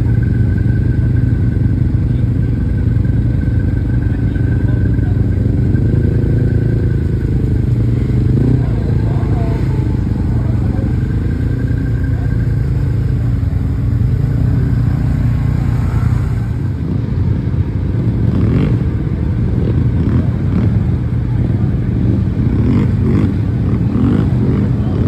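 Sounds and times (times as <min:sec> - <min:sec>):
engine droning: 0:00.0 - 0:25.0.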